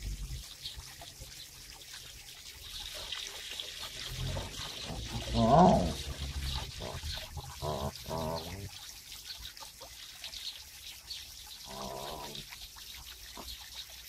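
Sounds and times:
water trickling into pond: 0.0 - 14.0.

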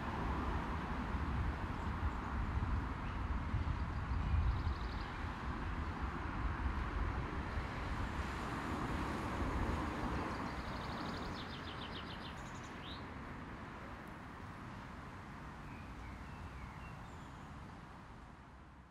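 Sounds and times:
distant traffic hum: 0.0 - 18.8
bird chirp: 10.4 - 13.0.

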